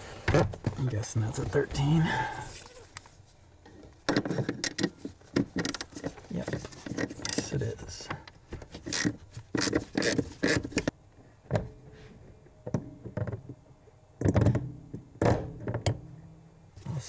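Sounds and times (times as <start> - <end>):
scattered clicks and knocks: 3.6 - 10.9.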